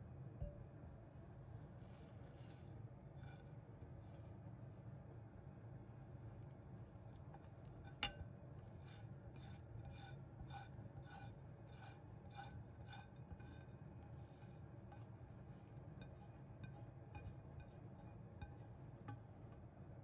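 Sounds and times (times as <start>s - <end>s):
scraping on metal dish: 2.3s - 3.6s, 7.2s - 19.6s.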